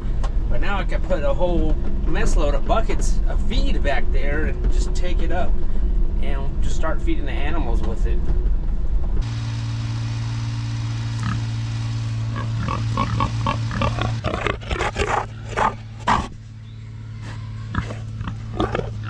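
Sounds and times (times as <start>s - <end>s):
steady low hum: 0.0s - 19.0s
pigs squealing and grunting: 12.3s - 16.4s, 17.0s - 19.0s.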